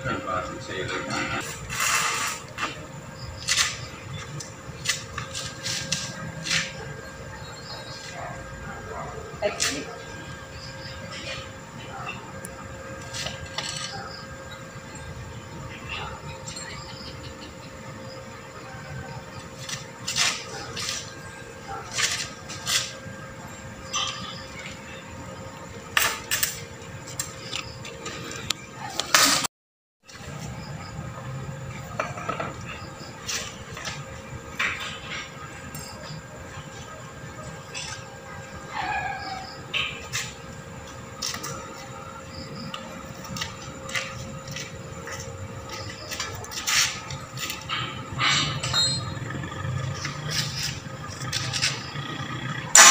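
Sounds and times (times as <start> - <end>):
steel rods clanking on concrete: 45.7 - 49.2.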